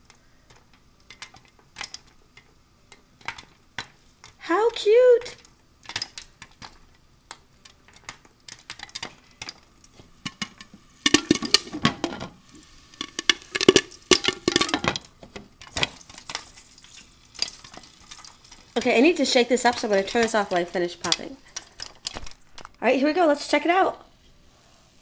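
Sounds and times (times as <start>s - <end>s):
popcorn popping: 0.0s - 22.8s
pan clatter: 7.9s - 22.3s.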